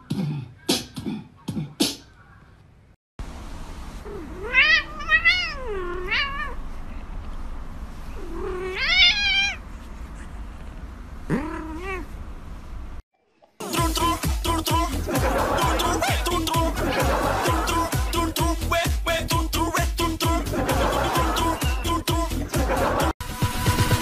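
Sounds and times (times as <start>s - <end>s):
cat meowing: 4.1s - 6.6s, 8.2s - 9.6s, 11.3s - 12.1s.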